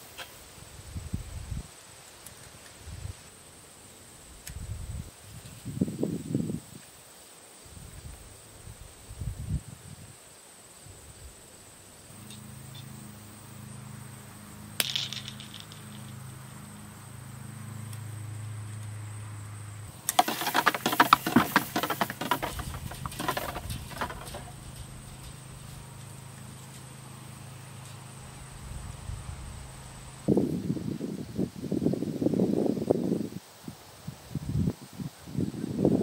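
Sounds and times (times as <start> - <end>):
rapid clattering and rattling: 19.9 - 27.0.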